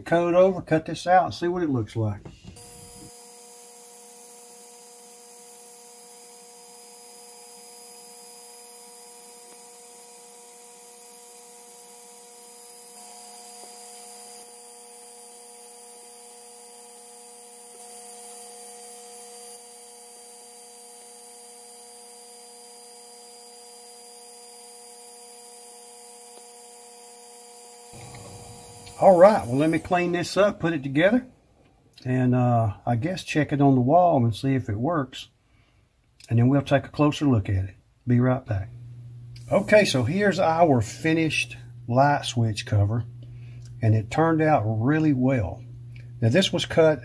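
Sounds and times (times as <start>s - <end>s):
laser engraver humming: 2.4s - 31.3s, 38.7s - 47.0s.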